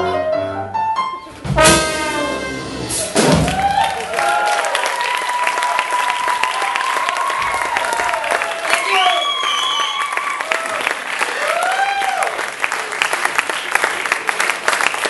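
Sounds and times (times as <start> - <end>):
jazz band playing: 0.0 - 3.9
audience applause and cheers: 2.0 - 15.0.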